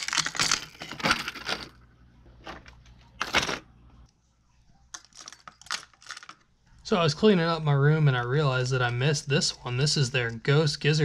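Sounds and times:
plastic lures clattering into box: 0.0 - 1.8, 2.4 - 3.7, 5.0 - 6.4.

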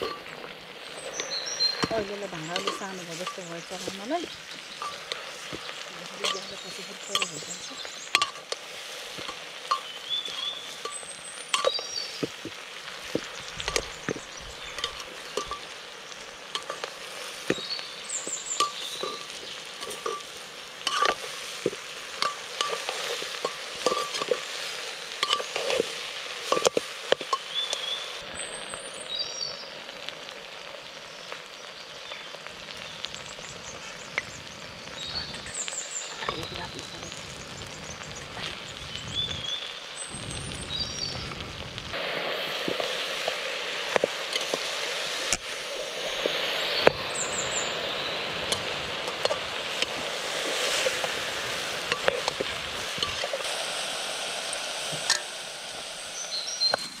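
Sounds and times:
food sizzling in a pot: 0.0 - 57.0
spoon scraping a pot: 18.6 - 27.5.

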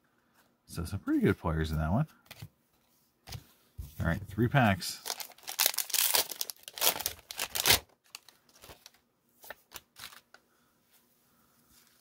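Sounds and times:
wrapper tearing and crinkling: 5.0 - 9.0, 9.6 - 10.3.

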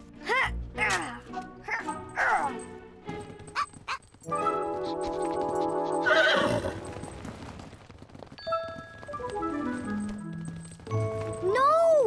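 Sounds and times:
cartoon horse whinnying: 6.0 - 6.8.

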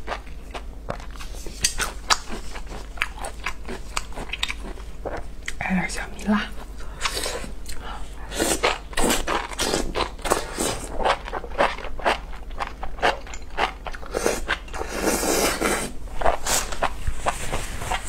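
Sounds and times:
wet crunchy chewing: 0.0 - 5.6, 7.0 - 18.0
person slurping: 7.0 - 10.9, 14.0 - 16.8.

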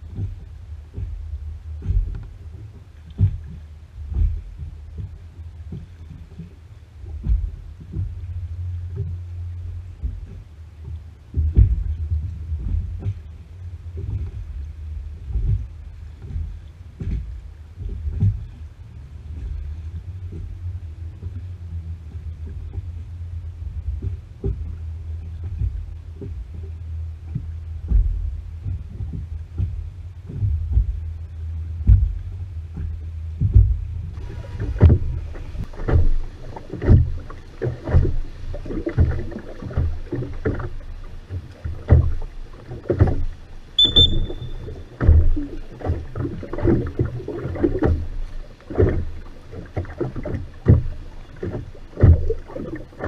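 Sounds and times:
low steady rumble: 0.0 - 53.0
oars splashing in water: 0.0 - 53.0
wooden knocks: 31.8 - 38.3
brief high tone: 43.8 - 44.6.

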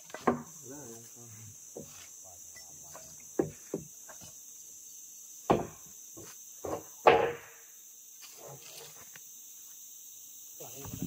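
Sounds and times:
hard wooden knocks: 5.5 - 5.8.

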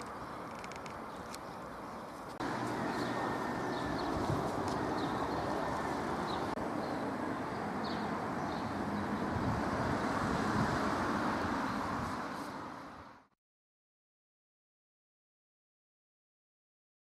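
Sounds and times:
road traffic hum: 0.0 - 13.4.

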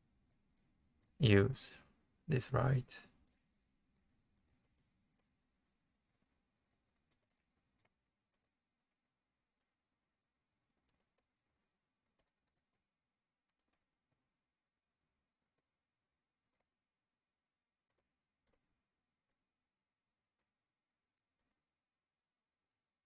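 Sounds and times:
computer mouse and keyboard clicks: 3.2 - 5.3, 6.1 - 9.0, 10.8 - 13.9, 16.4 - 16.8, 17.8 - 19.4.

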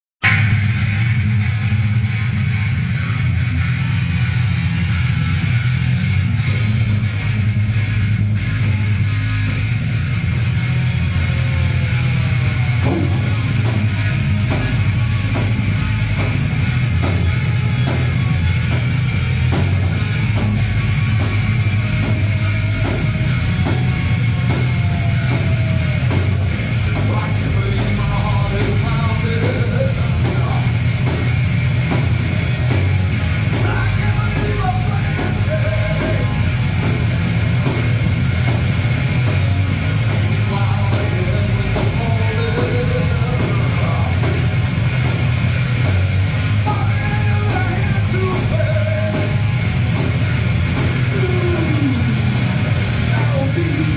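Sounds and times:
electric guitars: 0.2 - 53.9
drum kit beat: 6.2 - 53.9
man singing: 26.8 - 30.8, 33.6 - 36.5, 40.3 - 44.3, 46.6 - 49.4, 51.1 - 52.1, 53.1 - 53.9.

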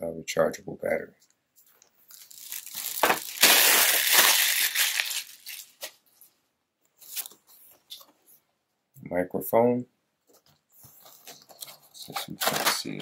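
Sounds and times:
packaging rustling: 1.6 - 6.0, 11.0 - 13.0.

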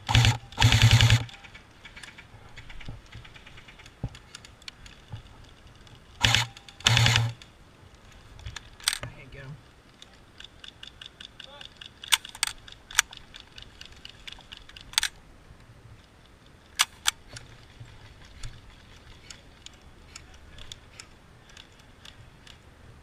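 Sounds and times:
airsoft gunshots: 0.0 - 1.4.

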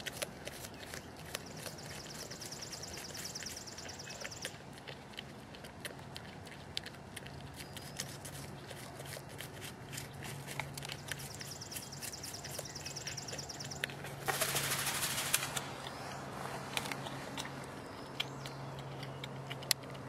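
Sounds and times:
porcupine chewing crunchily: 0.0 - 20.0
loud rustling hiss: 14.2 - 15.8.

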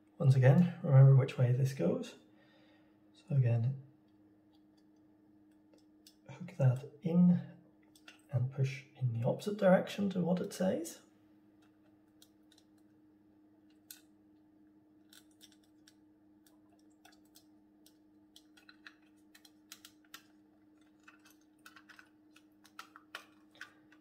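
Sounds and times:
faint steady hum: 0.0 - 24.0
small clicks and taps of model: 11.6 - 12.9, 15.1 - 24.0.

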